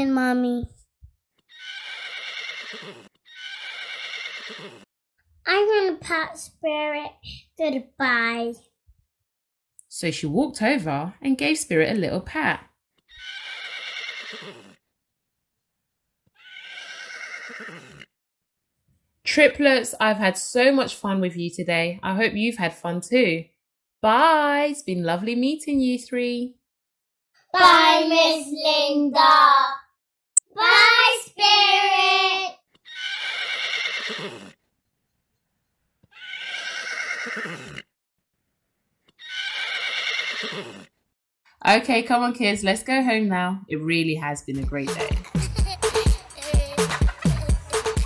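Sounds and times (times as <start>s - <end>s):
horse whinny: 1.4s - 4.9s, 13.0s - 14.9s, 16.3s - 18.2s, 32.8s - 34.6s, 36.0s - 37.9s, 39.1s - 41.0s.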